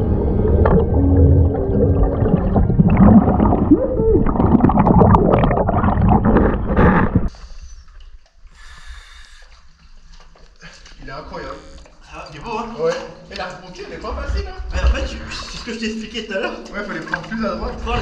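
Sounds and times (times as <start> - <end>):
underwater bubbling and gurgling: 0.0 - 7.3
faint water sounds: 0.0 - 12.6, 13.2 - 18.0.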